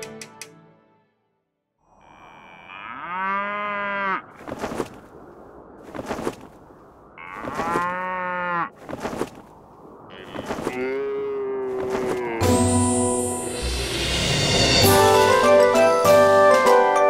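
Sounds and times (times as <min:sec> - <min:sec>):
cow mooing: 0:01.9 - 0:04.3, 0:07.2 - 0:08.7, 0:10.1 - 0:12.6.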